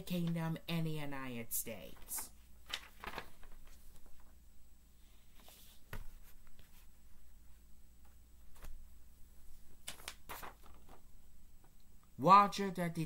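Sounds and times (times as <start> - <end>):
paper rustling: 1.9 - 4.4, 9.4 - 11.1.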